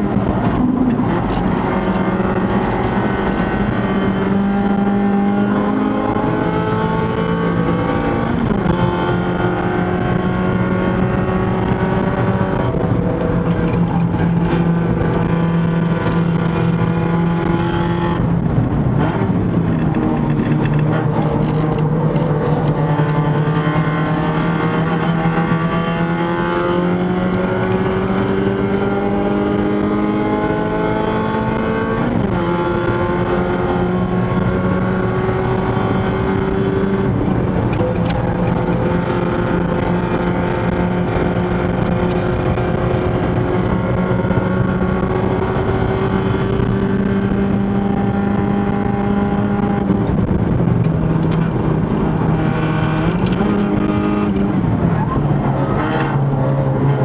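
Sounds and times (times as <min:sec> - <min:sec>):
race car engine under full throttle: 0:00.0 - 0:57.0.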